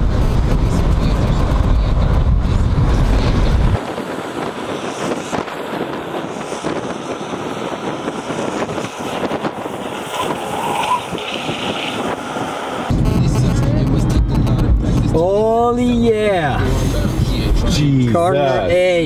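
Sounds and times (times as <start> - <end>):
skateboard wheels rolling on asphalt: 0.0 - 12.9
wind rushing over microphone: 0.0 - 17.9.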